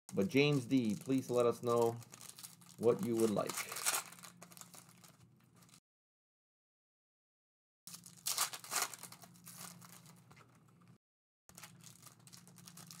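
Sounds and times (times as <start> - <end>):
foil wrappers crinkling and tearing: 0.1 - 5.8, 7.9 - 10.7, 11.5 - 13.0
low steady hum: 0.1 - 5.8.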